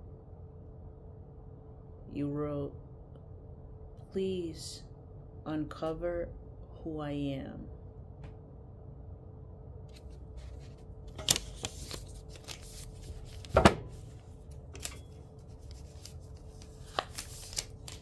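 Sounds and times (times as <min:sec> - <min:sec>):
faint steady hum: 0:00.0 - 0:18.0
paper rustling and clicks: 0:09.9 - 0:14.0, 0:14.6 - 0:18.0.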